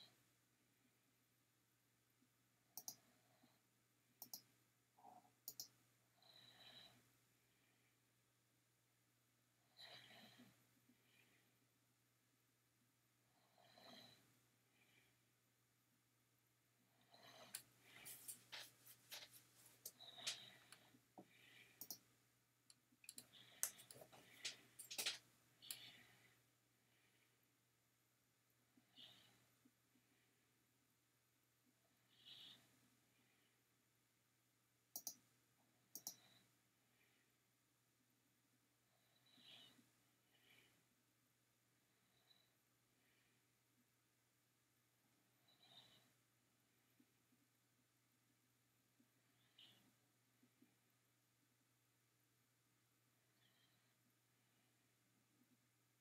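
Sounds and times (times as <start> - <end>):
computer mouse clicks: 2.8 - 3.0, 4.2 - 4.5, 5.4 - 5.8, 21.8 - 22.0, 23.0 - 25.9, 34.9 - 35.2, 35.9 - 36.3.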